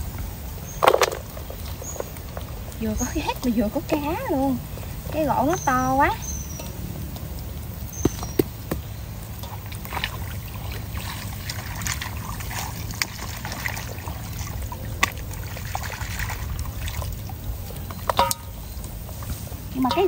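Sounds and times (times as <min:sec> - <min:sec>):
muddy water splashing: 0:00.0 - 0:20.0
small clicks and knocks: 0:00.8 - 0:02.6.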